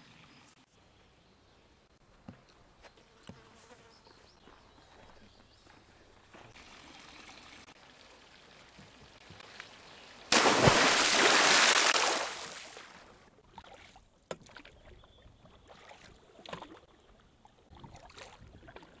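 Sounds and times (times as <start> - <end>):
water dripping: 6.3 - 12.6
water splashing: 6.4 - 19.0.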